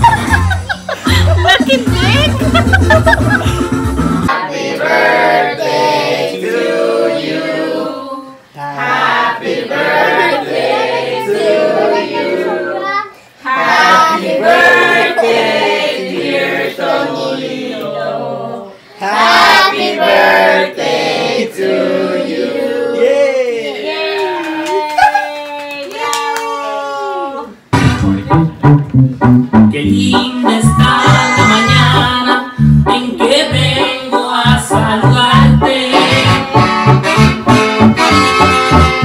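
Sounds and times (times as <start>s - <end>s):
group of voices singing together: 4.3s - 23.8s, 29.8s - 38.8s.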